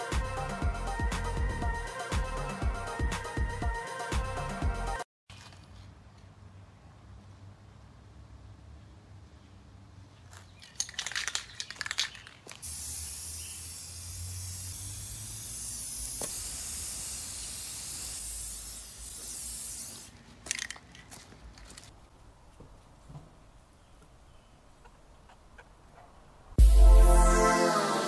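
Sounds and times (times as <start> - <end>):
aerosol can rattling: 10.6 - 13.8, 14.4 - 21.9
aerosol can spraying: 12.6 - 20.2.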